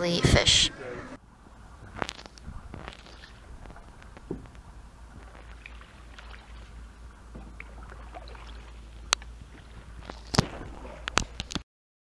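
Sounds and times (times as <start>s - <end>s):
wind rumble on microphone: 0.2s - 11.6s
light water sounds: 1.4s - 11.6s
paddle clicks: 7.3s - 11.6s.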